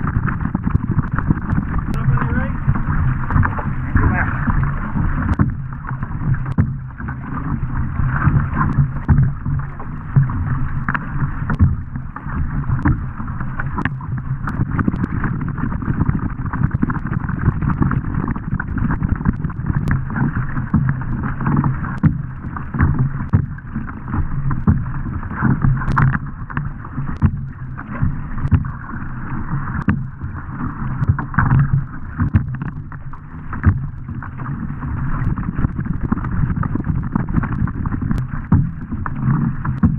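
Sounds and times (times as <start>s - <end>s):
wind buffeting microphone: 0.0s - 10.3s
paddle stroke splashes: 0.0s - 39.9s
water rushing at a boat's bow: 0.0s - 39.9s.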